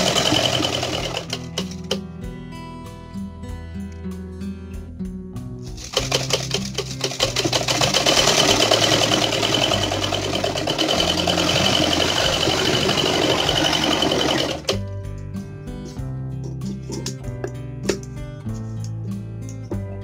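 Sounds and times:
sewing machine clattering: 0.0s - 2.0s, 5.8s - 14.8s
soft background music: 0.0s - 20.0s.

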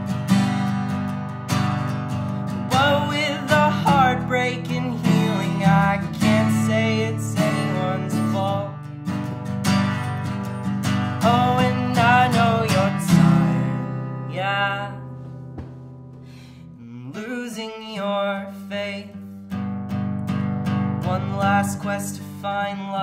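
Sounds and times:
acoustic guitar strumming: 0.0s - 23.0s
man singing: 2.7s - 8.8s, 11.1s - 15.2s, 16.7s - 19.2s, 21.0s - 23.0s.

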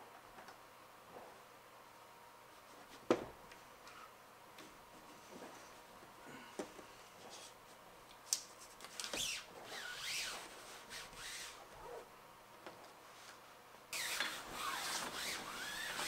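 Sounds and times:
hands rubbing solar panel: 14.0s - 16.0s
squeaky sliding: 14.0s - 16.0s.

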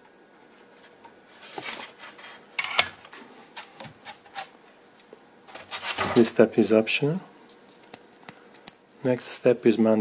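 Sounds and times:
small tools clicking and clattering: 2.6s - 3.0s.

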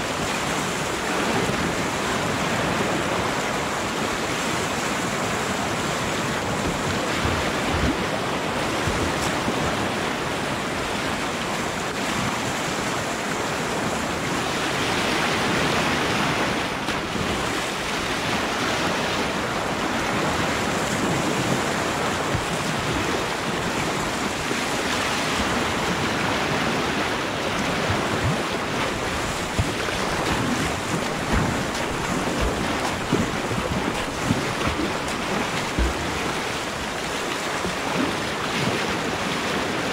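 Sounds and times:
paddle strokes in water: 0.0s - 39.9s
river water rushing and splashing: 0.0s - 39.9s.

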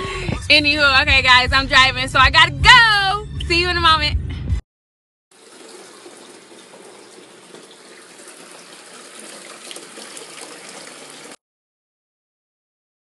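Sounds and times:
fountain water splashing: 5.4s - 11.4s.

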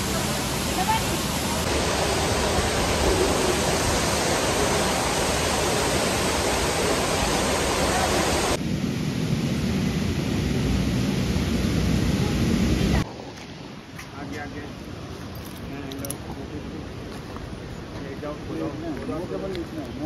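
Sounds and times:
waterfall rushing: 0.0s - 8.6s.

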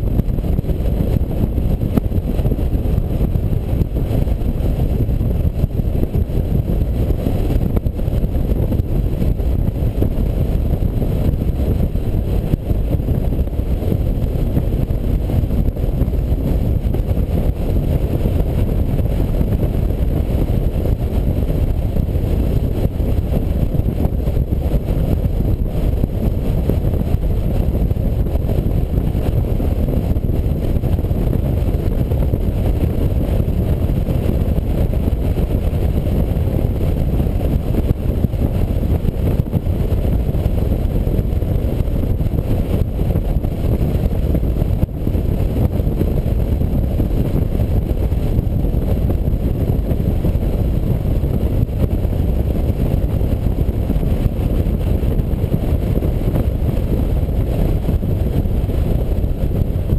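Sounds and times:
motorcycle engine rumble: 0.0s - 59.9s
wind buffeting microphone: 0.0s - 59.9s.

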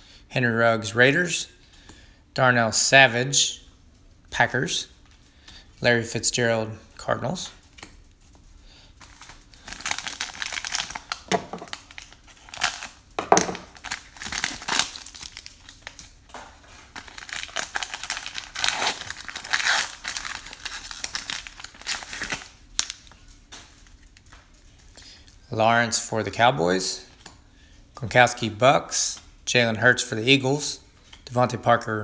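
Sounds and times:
card pack wrapper crinkling and tearing: 9.0s - 24.2s.

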